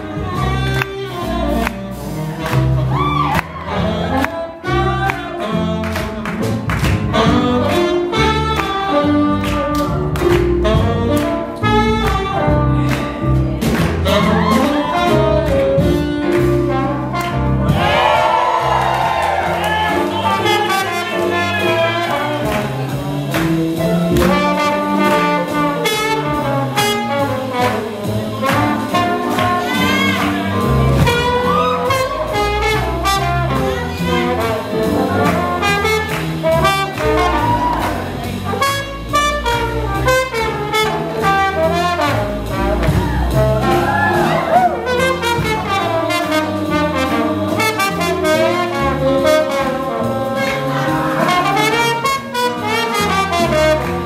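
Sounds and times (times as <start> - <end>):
drums: 0.0 - 54.0
piano: 0.0 - 54.0
saxophone: 0.0 - 54.0
trombone: 0.0 - 54.0
trumpet: 0.0 - 54.0
upright bass: 0.0 - 54.0.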